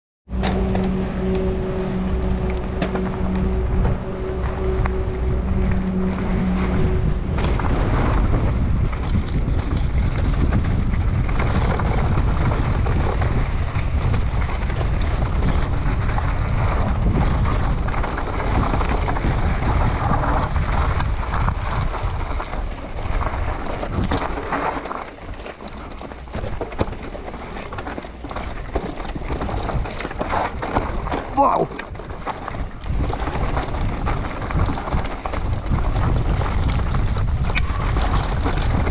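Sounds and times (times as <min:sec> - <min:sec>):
bike rattling over rocks: 0:00.3 - 0:38.9
bike rolling over gravel trail: 0:00.3 - 0:38.9
wind buffeting microphone: 0:00.3 - 0:38.9.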